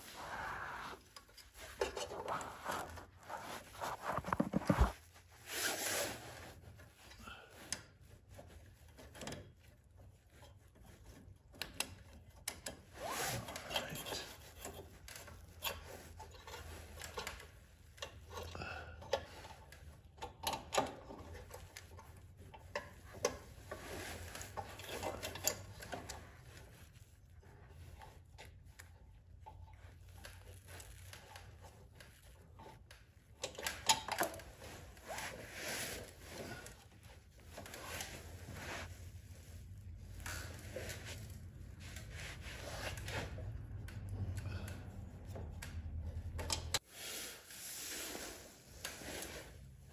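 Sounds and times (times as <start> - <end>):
hands handling metal parts: 1.0 - 5.0.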